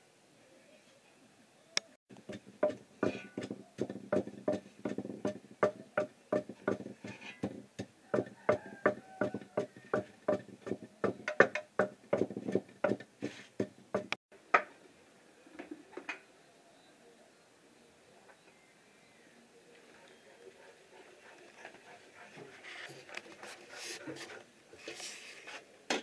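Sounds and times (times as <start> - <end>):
pestle pounding in mortar: 2.1 - 14.2.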